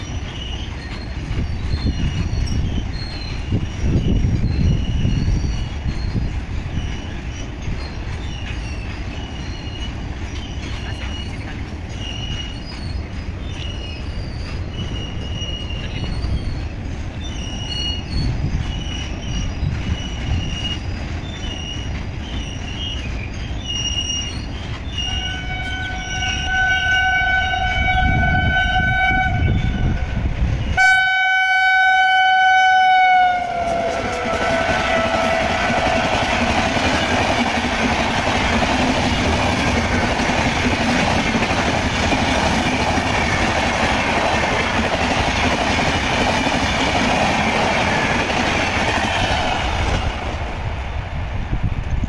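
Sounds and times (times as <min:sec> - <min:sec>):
train rumble: 0:00.0 - 0:52.0
train horn: 0:25.0 - 0:30.2, 0:30.8 - 0:36.5.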